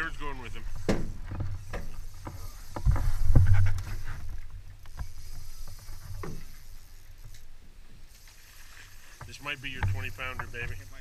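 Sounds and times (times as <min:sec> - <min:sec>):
knocks and thumps on boat: 0:00.8 - 0:04.4, 0:09.2 - 0:10.8.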